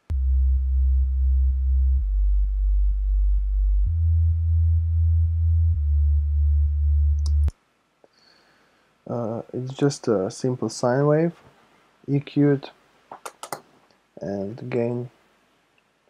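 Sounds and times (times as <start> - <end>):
sine wave sub bass notes: 0.0 - 7.5.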